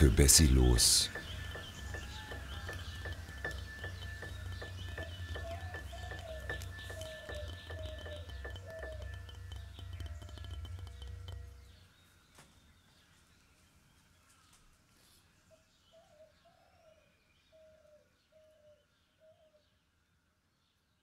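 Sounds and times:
faint outdoor ambience: 0.0 - 21.0
music: 1.0 - 11.7
bird cooing: 5.0 - 9.2.

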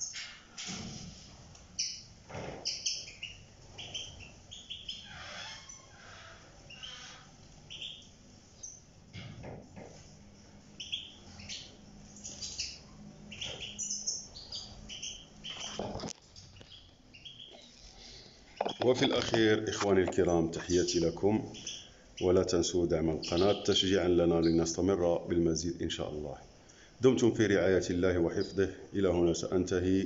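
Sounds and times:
birds chirping and twittering: 0.0 - 0.8, 1.6 - 30.0.

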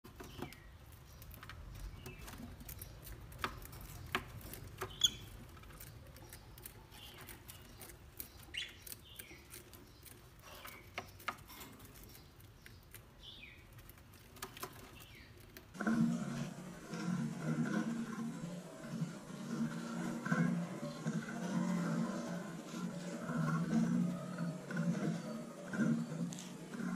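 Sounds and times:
lovebird chirps: 4.9 - 5.4.

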